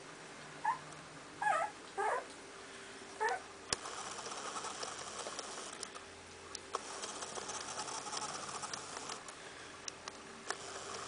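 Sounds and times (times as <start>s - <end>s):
puppy whimpering: 0.6s - 0.8s, 1.4s - 2.3s, 3.2s - 3.4s.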